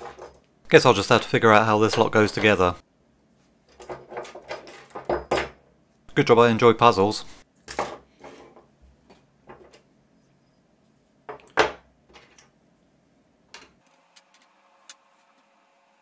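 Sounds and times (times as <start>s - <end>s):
metal parts knocking on wooden table: 3.8s - 5.6s.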